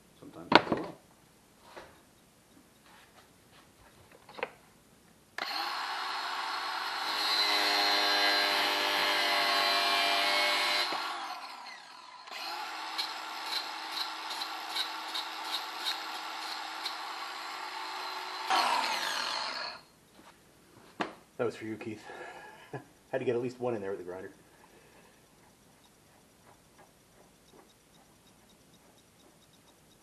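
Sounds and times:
angle grinder cutting steel: 5.4 - 19.9
regular ticks: 24.2 - 30.0.

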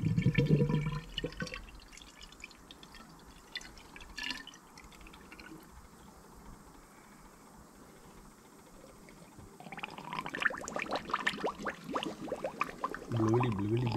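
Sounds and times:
liquid pouring from a jug: 0.0 - 5.7, 9.6 - 13.9.

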